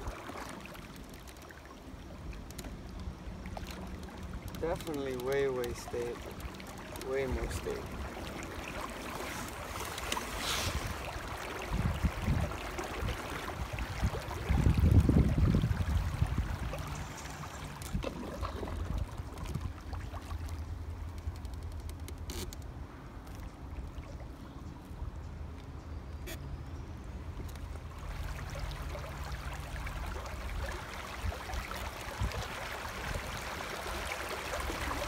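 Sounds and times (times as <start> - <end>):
water lapping against canoe hull: 0.0 - 26.4, 27.3 - 35.0
wind on microphone: 10.4 - 19.8.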